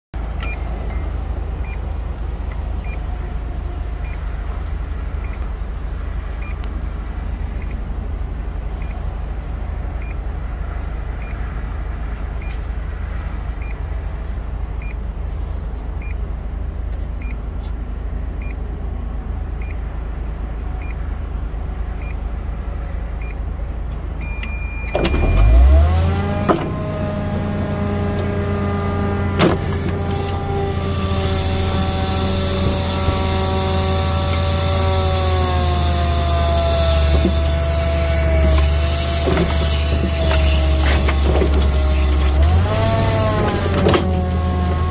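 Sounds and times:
diesel truck engine idling: 0:14.6 - 0:44.9.

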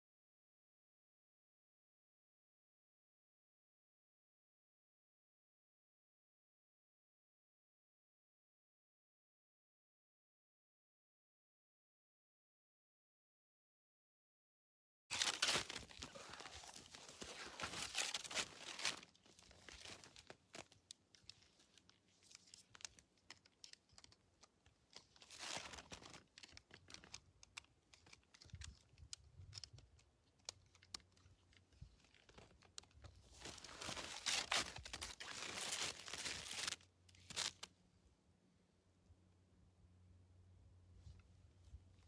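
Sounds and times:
crunching and rustling: 0:15.1 - 0:37.7
small clicks: 0:17.6 - 0:33.6.

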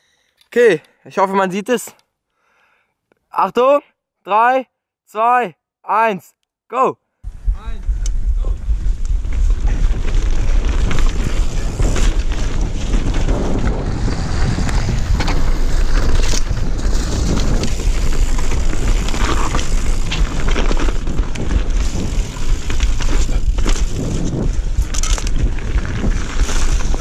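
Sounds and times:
wind rushing over microphone: 0:07.2 - 0:27.0
bike tyres on dirt and twigs: 0:07.3 - 0:27.0
bike clattering over bumps: 0:09.2 - 0:27.0.

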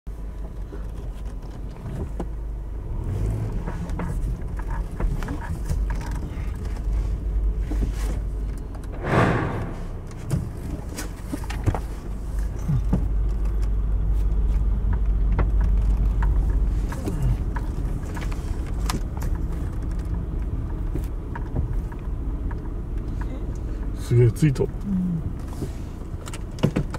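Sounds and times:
car engine and road rumble: 0:00.1 - 0:26.9
rushing noise: 0:08.9 - 0:10.2.

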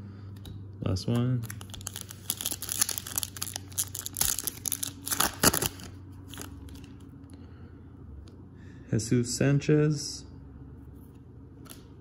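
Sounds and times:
plastic wrapper tearing and crinkling: 0:01.4 - 0:07.0.

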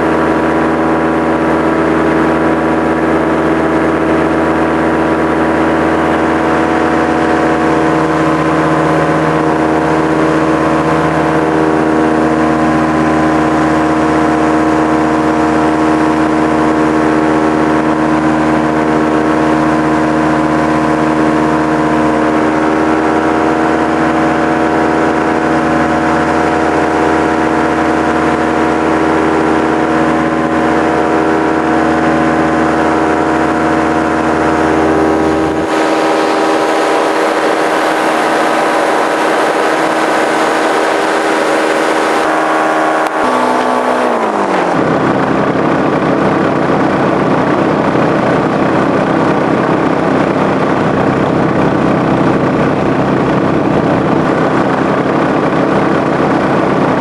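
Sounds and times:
paramotor engine and propeller: 0:00.0 - 0:57.0.

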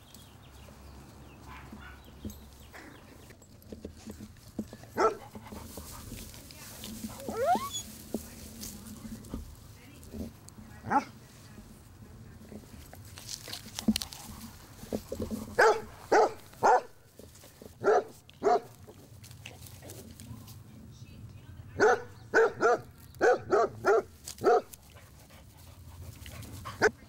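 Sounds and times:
dog barking: 0:01.5 - 0:02.1, 0:05.0 - 0:05.2, 0:10.9 - 0:11.1, 0:15.6 - 0:17.0, 0:17.8 - 0:18.7, 0:21.8 - 0:24.7.

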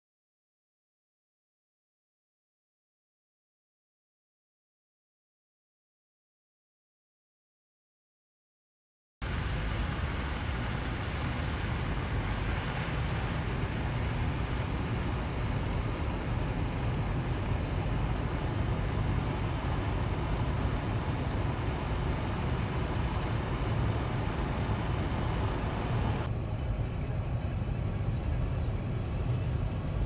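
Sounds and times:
car road and engine rumble: 0:09.2 - 0:30.0.

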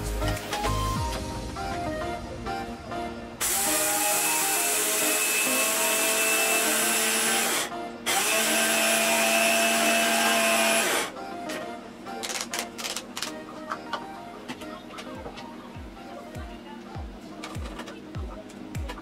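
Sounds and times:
food processor motor grinding: 0:03.4 - 0:11.1.

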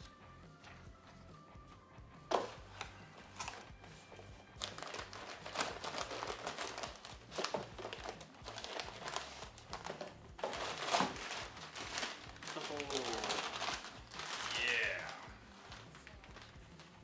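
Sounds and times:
packing paper crinkling: 0:04.6 - 0:17.0.

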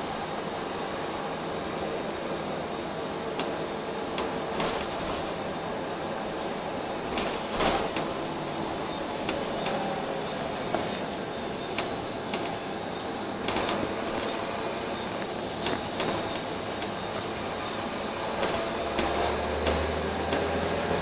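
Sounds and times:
bus engine and road noise: 0:00.0 - 0:21.0
sharp rattles and clicks: 0:13.4 - 0:14.4, 0:18.4 - 0:20.5.

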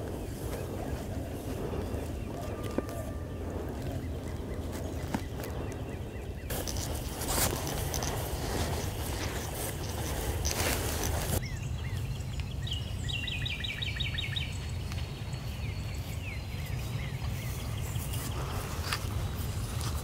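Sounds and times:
rustling: 0:00.0 - 0:11.4
bird chirping: 0:00.0 - 0:20.0
wind rumble on microphone: 0:00.0 - 0:20.0.

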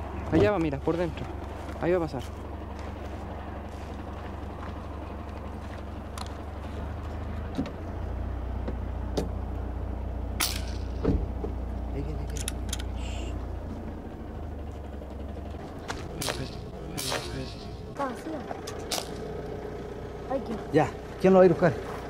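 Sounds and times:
vehicle engine idling: 0:00.0 - 0:22.0
sharp clicks and knocks: 0:12.2 - 0:12.9.

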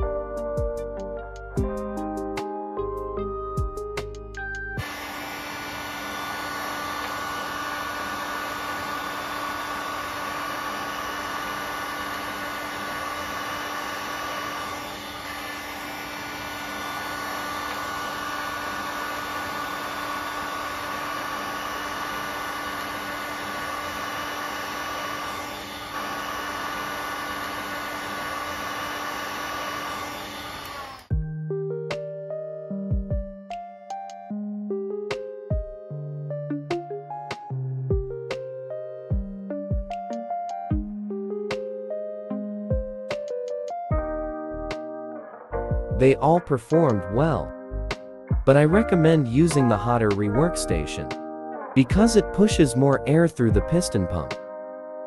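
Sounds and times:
heat gun fan whirring: 0:04.8 - 0:31.2.

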